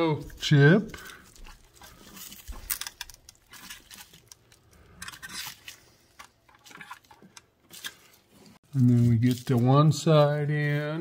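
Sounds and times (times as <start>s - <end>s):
fingers handling circuit board: 0.9s - 8.1s.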